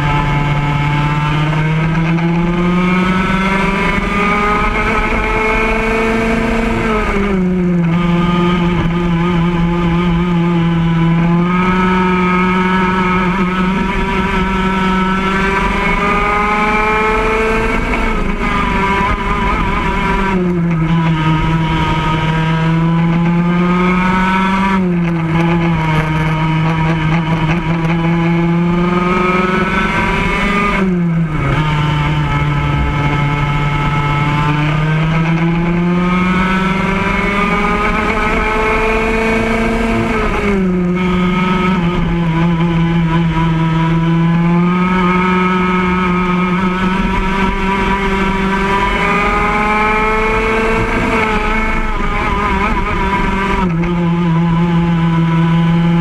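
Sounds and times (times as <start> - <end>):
go-kart engine accelerating: 0.0 - 56.0.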